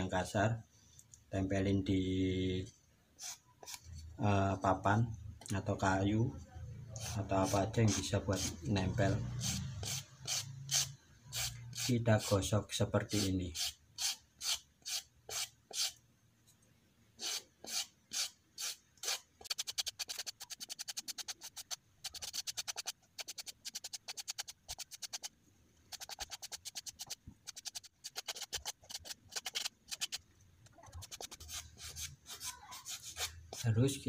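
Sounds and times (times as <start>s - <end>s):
sandpaper rasping on wood: 7.0s - 12.4s, 13.1s - 16.0s, 17.2s - 25.3s, 25.9s - 30.2s, 31.0s - 33.8s.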